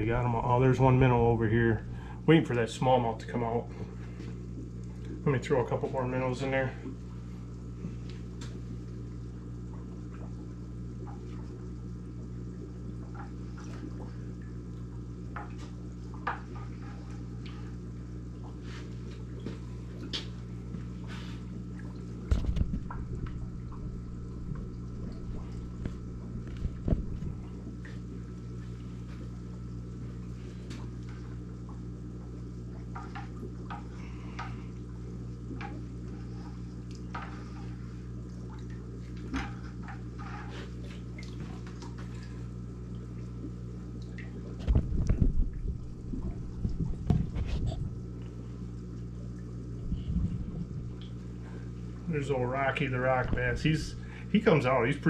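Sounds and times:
aquarium pump hum: 0.0s - 55.0s
water trickling and dripping: 6.8s - 49.8s
low thumps: 22.3s - 27.4s.

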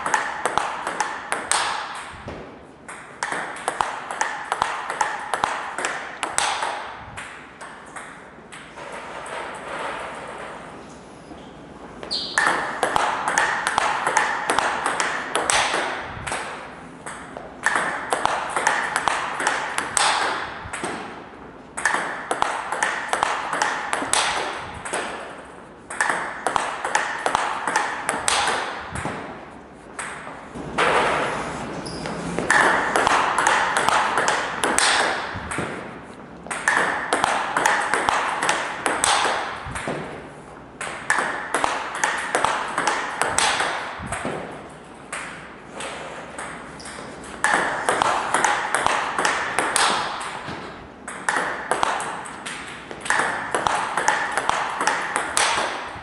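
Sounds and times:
table tennis ball clicking: 2.8s - 8.7s, 12.1s - 21.0s, 21.8s - 25.2s, 25.9s - 28.8s, 36.5s - 40.1s.

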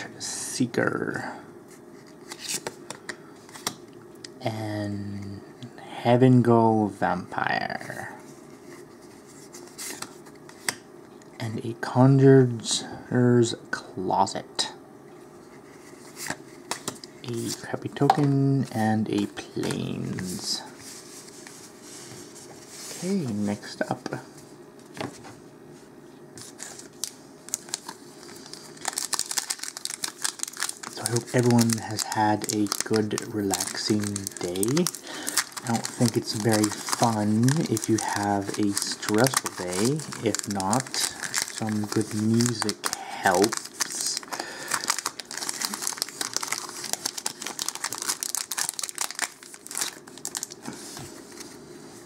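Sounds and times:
foil wrapper crinkling: 26.4s - 50.8s.

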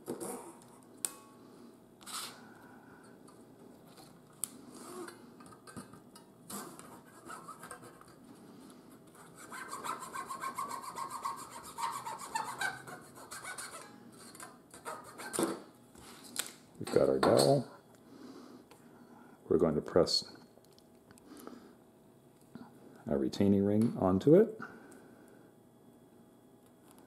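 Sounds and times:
blade rasping through wood: 9.2s - 13.9s.

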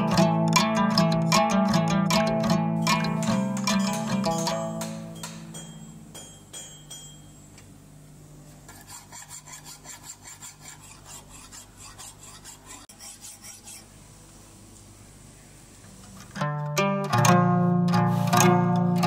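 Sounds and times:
hand file rasping on metal: 8.7s - 13.9s.

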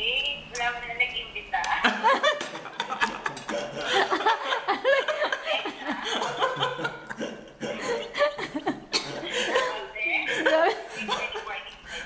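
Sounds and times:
people talking: 0.0s - 4.3s, 9.0s - 12.0s
people laughing: 1.8s - 11.6s.

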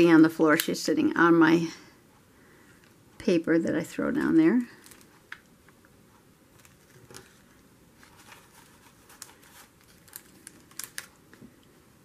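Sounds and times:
plastic stickers clicking and crinkling: 4.8s - 5.5s, 6.5s - 11.6s.

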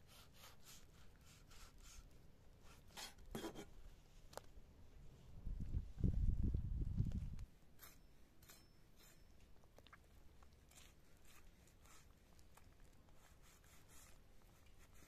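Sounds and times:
knife slicing and scraping meat: 7.8s - 9.3s, 10.7s - 12.1s.

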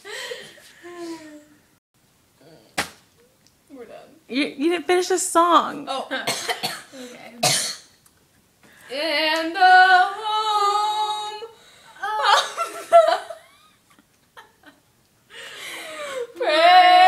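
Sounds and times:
women laughing: 12.0s - 14.8s.

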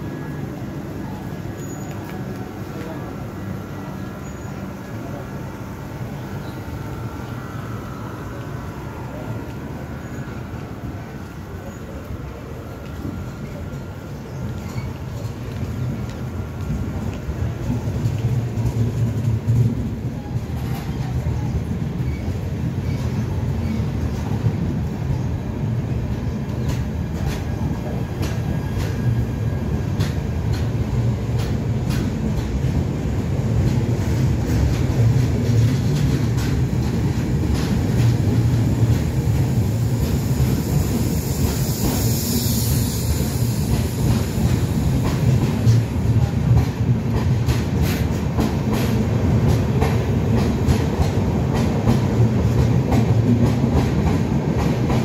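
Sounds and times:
train wheels rumbling on rails: 0.0s - 55.0s.

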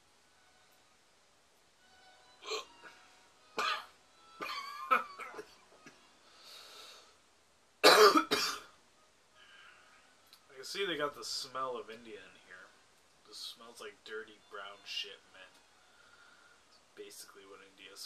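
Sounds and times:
man coughing: 3.6s - 5.5s, 7.8s - 8.7s
man clearing his throat: 7.8s - 8.7s.

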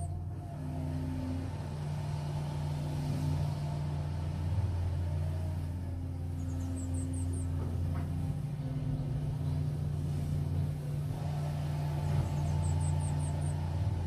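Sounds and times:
excavator diesel engine running: 0.0s - 14.0s
faint hydraulic whine: 0.0s - 14.0s.

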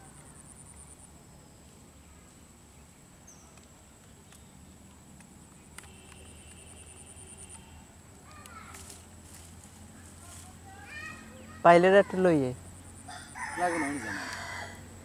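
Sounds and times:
insect high-pitched trill: 5.7s - 15.0s.

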